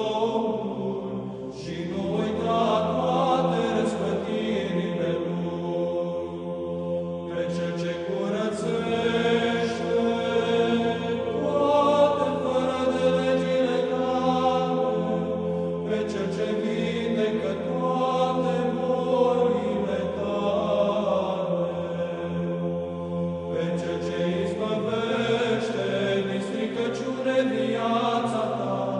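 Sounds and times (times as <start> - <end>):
held vocal drone: 0.0 - 28.9
male voices chanting: 0.0 - 28.9.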